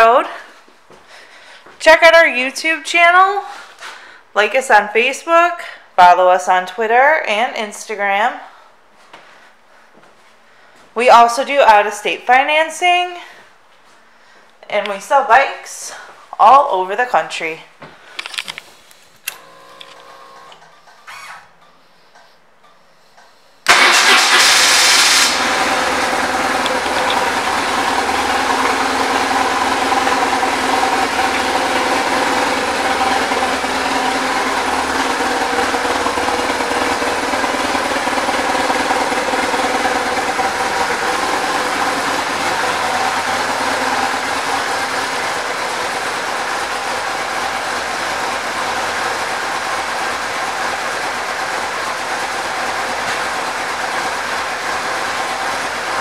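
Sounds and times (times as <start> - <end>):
motorcycle engine starting and idling: 23.6 - 56.0.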